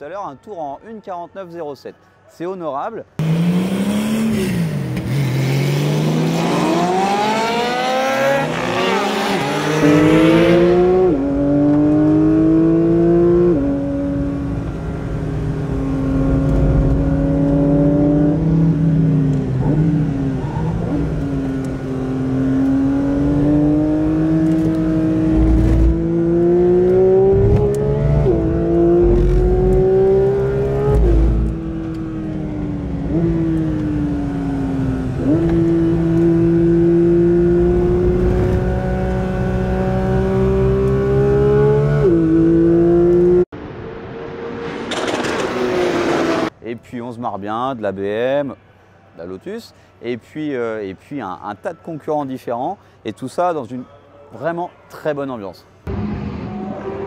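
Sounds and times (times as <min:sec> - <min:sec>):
car engine accelerating: 0:03.2 - 0:46.5
rushing wind and road noise: 0:06.0 - 0:46.6.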